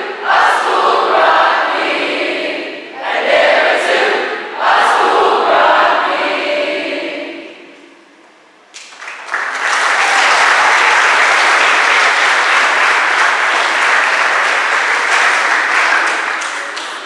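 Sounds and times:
audience applauding: 8.8s - 17.0s.

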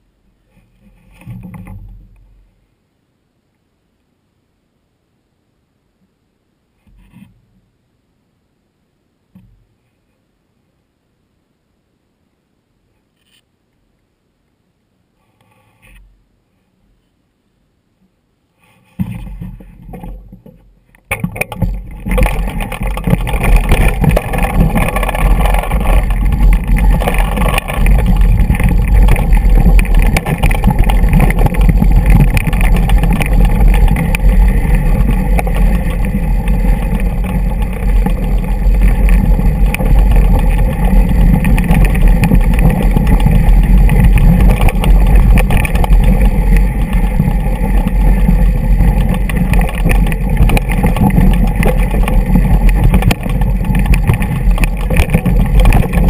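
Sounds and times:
bike tyres rattling over rock: 19.0s - 56.0s
wind buffeting camera: 21.2s - 56.0s.

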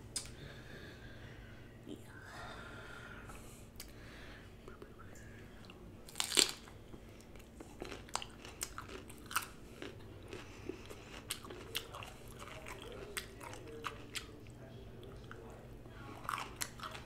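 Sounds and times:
chewing with crisp crunches: 5.6s - 17.0s.

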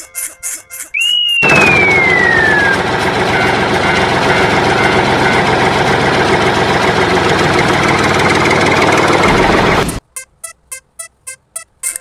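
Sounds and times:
heavy diesel engine running: 1.4s - 10.0s.

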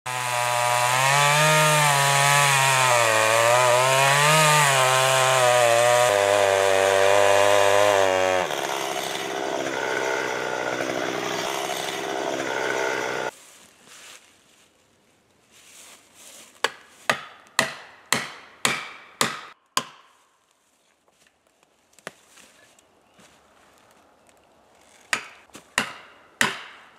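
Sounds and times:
chainsaw cutting tree trunk: 0.1s - 13.3s, 17.1s - 20.0s.

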